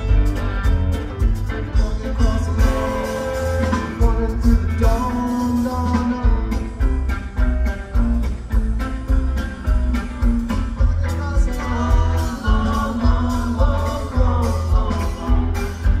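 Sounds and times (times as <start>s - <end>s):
rock band music with singing: 0.0s - 16.0s.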